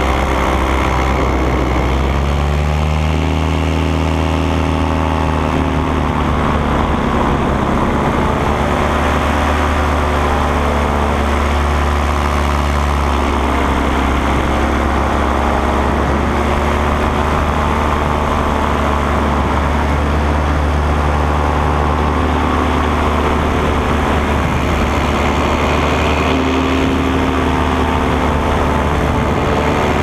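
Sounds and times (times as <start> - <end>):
paramotor engine drone: 0.0 - 30.0.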